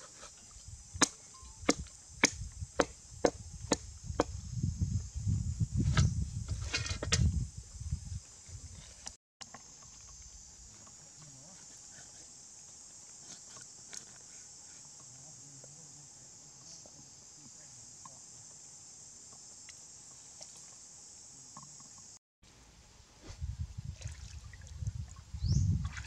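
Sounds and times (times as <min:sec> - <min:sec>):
insect chorus: 0:00.0 - 0:26.0
feet sloshing in shallow water: 0:23.9 - 0:25.2.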